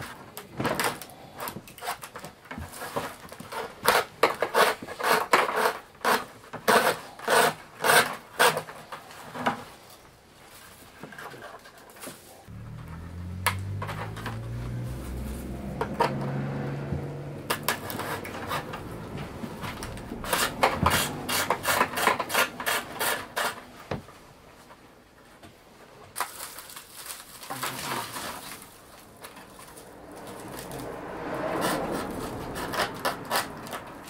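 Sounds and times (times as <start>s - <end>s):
bamboo strips clicking and rustling: 10.6s - 16.4s, 17.4s - 23.8s, 26.1s - 34.0s.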